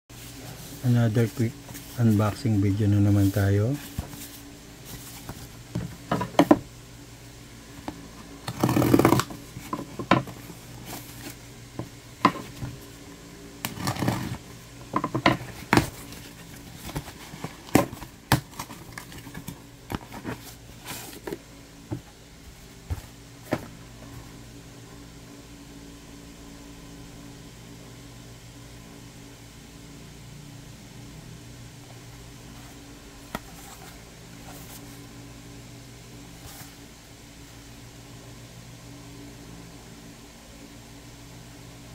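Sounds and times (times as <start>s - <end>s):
cardboard box rustling and scraping: 0.1s - 2.5s, 3.1s - 6.6s, 8.4s - 12.9s, 13.7s - 23.7s, 33.4s - 35.0s
steady low hum: 0.1s - 41.9s.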